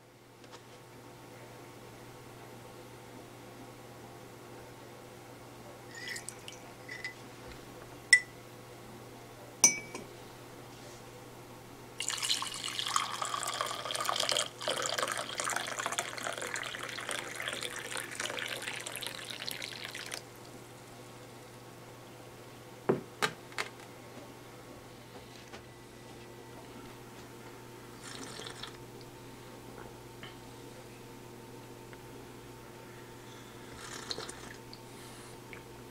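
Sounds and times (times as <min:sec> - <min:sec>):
liquid pouring into mug: 0:05.9 - 0:07.0, 0:12.0 - 0:20.3
metal spoon clinking mug: 0:05.9 - 0:07.2, 0:09.6 - 0:10.1.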